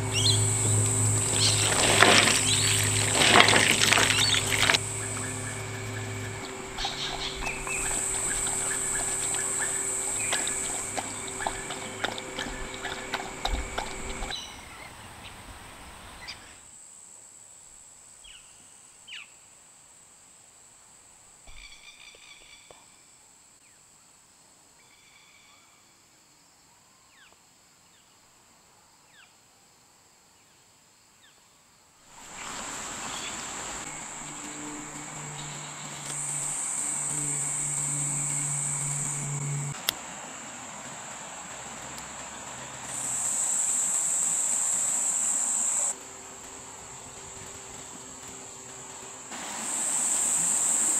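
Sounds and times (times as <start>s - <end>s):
bird chirps: 0.0s - 15.0s
high insect drone: 0.0s - 17.0s, 32.1s - 50.9s
dog lapping water: 1.2s - 14.4s.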